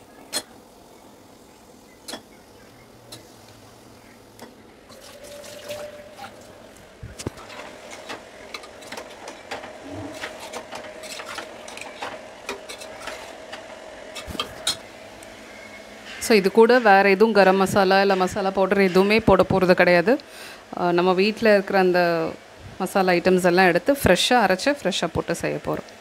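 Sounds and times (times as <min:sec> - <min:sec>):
metal spoon scraping pan: 0:07.4 - 0:13.4.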